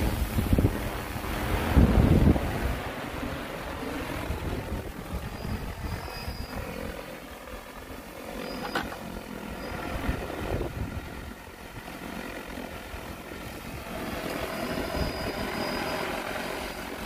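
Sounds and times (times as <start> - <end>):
drone rotors humming: 0.0 - 17.0
thin high whine: 4.6 - 7.4, 8.3 - 10.6, 13.6 - 17.0.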